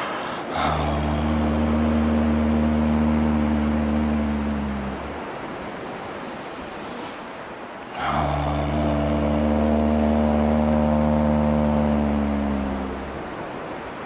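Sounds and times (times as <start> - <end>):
sea surf washing: 0.0 - 14.0
man humming low tone: 0.4 - 5.3, 7.9 - 13.4.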